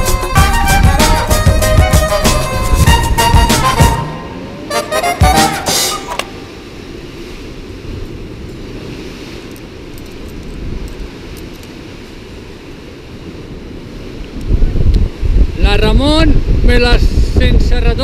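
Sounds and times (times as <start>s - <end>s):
wind rumbling on microphone: 0.0s - 4.7s, 6.2s - 18.0s
sea waves breaking on rocks: 6.0s - 16.9s.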